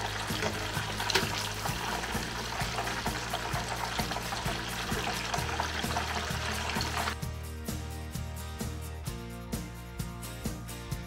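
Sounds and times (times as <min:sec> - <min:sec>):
food deep-frying in oil: 0:00.0 - 0:07.2
background music with steady beat: 0:00.0 - 0:11.0.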